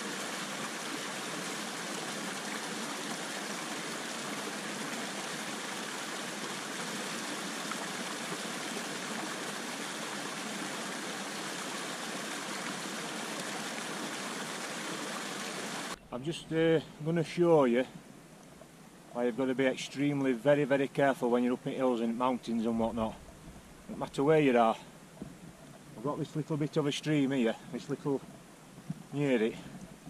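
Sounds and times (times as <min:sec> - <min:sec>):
stream rushing over rocks: 0:00.0 - 0:16.8, 0:25.9 - 0:29.8.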